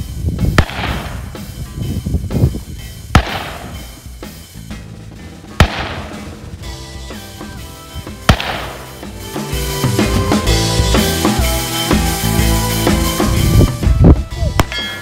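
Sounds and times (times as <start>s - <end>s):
background music: 0.0s - 15.0s
handgun shots: 3.2s - 3.8s, 5.6s - 6.2s, 8.3s - 8.8s.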